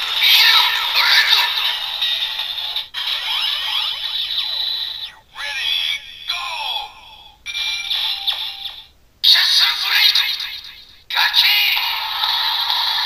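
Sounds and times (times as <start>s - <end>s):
toy speaker synthesized tones: 3.0s - 5.2s.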